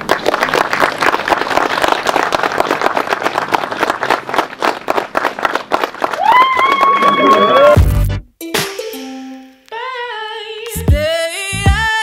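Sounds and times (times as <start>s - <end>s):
crowd applauding: 0.0s - 7.8s.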